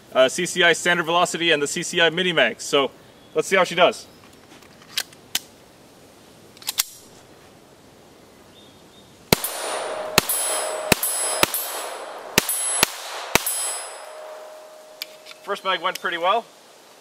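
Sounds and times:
pistol shots: 9.3s - 15.2s.

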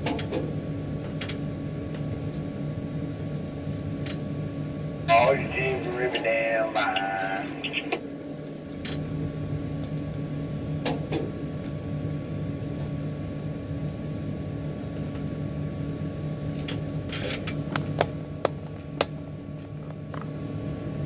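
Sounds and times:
machinery humming: 5.0s - 8.4s.

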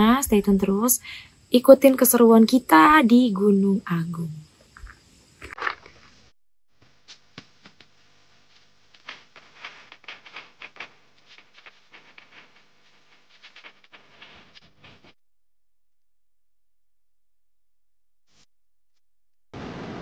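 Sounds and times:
footsteps on gravel: 4.8s - 6.3s.

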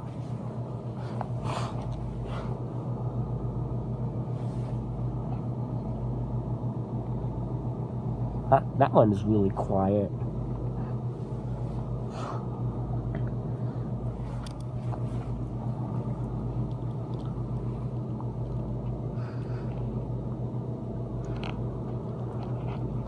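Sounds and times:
compressor humming: 0.0s - 23.0s.

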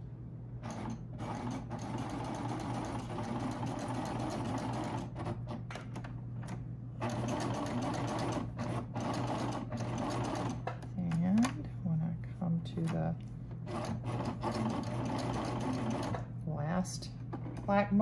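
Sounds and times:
serger sewing machine running: 0.6s - 5.6s, 7.0s - 10.8s, 13.6s - 16.3s.

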